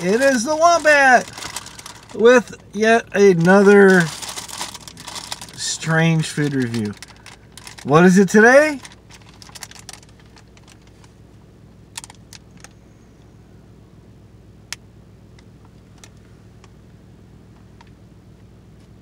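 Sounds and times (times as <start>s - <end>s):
plastic snack packets crackling: 0.0s - 11.0s
low hum inside car: 0.0s - 19.0s.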